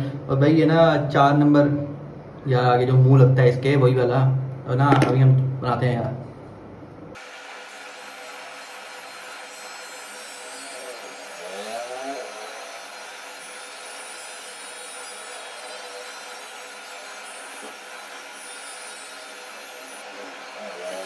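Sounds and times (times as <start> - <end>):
beard trimmer buzzing: 7.7 - 21.0.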